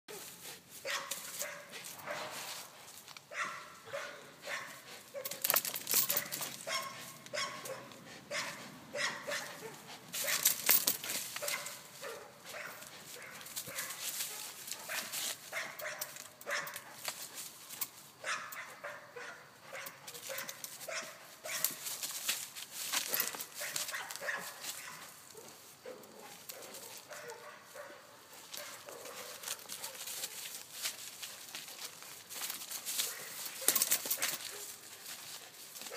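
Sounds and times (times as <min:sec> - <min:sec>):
feet scuffing dry leaves: 0:00.1 - 0:05.4, 0:06.2 - 0:17.8, 0:20.3 - 0:25.6, 0:26.2 - 0:35.9
dog barking: 0:00.8 - 0:02.4, 0:03.3 - 0:05.4, 0:06.0 - 0:10.5, 0:11.4 - 0:17.0, 0:18.2 - 0:21.8, 0:23.1 - 0:30.4, 0:33.0 - 0:34.8.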